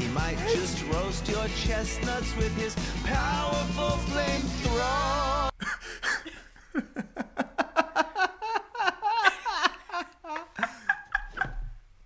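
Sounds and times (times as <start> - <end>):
man and woman laughing: 5.6 - 11.8.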